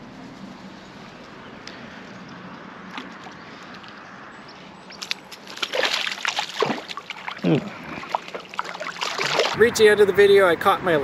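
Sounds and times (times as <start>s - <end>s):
faint outdoor background: 0.0s - 11.0s
fish splashing at water surface: 5.0s - 9.6s.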